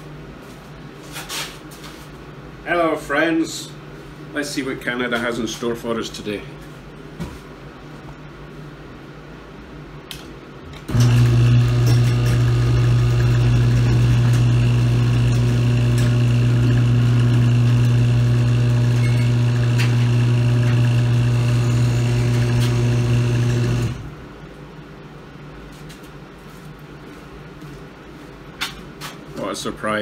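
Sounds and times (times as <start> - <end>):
garage door motor hum: 10.1 - 24.4.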